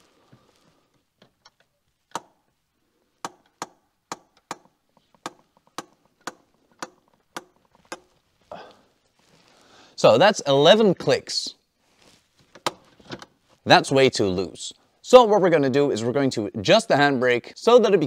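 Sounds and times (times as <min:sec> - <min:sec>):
handbrake ratchet clicking: 0:03.2 - 0:08.1.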